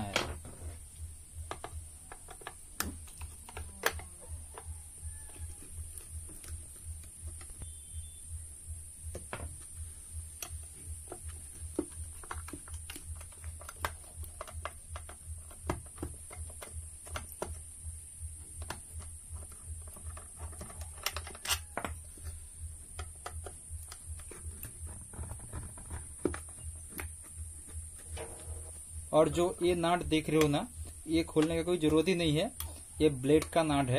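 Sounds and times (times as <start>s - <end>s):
faint high whine: 3.9s - 12.1s
pulsing low hum: 5.8s - 13.6s
screwdriver clicking on metal: 18.7s - 24.7s.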